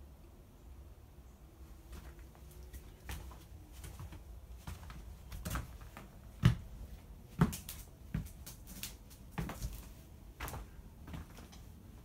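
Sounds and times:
footsteps on debris: 0:01.9 - 0:11.6.

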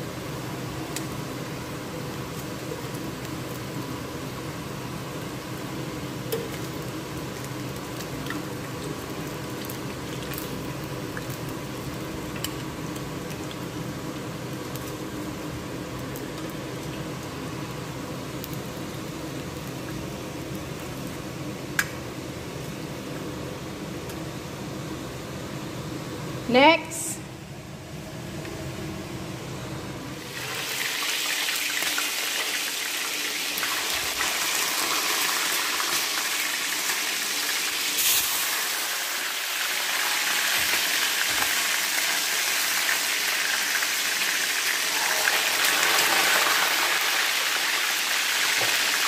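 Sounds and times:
food sizzling in oil: 0:01.0 - 0:21.3, 0:30.2 - 0:49.0.

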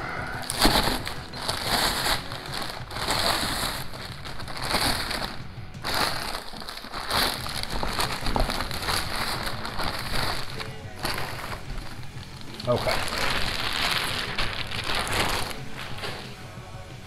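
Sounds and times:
plastic wrapping crinkling: 0:00.0 - 0:17.0.

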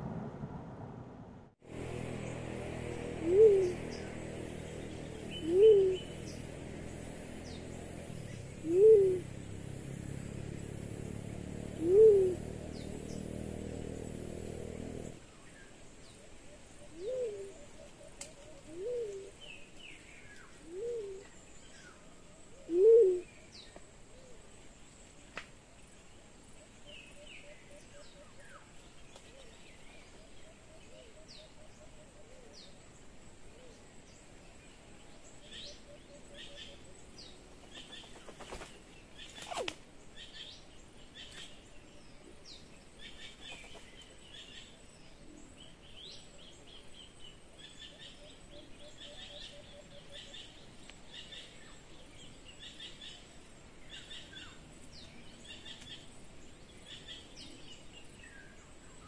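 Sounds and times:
birds chirping and trilling: 0:01.8 - 0:24.4, 0:25.9 - 0:59.0
low pulsed bird call: 0:03.2 - 0:04.1, 0:05.3 - 0:06.3, 0:08.6 - 0:09.2, 0:22.6 - 0:23.6.

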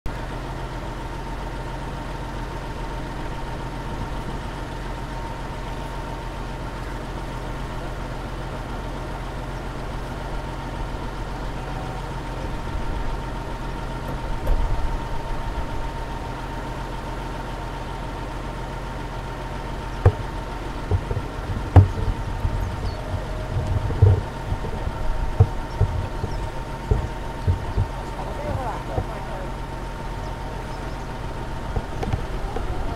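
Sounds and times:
bus engine idling: 0:00.1 - 0:32.9
sharp knocks: 0:20.0 - 0:28.1.

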